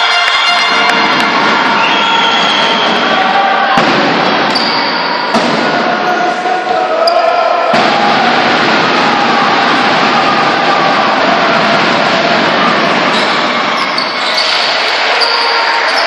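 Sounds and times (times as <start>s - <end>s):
crowd chanting and shouting: 0.0s - 16.0s.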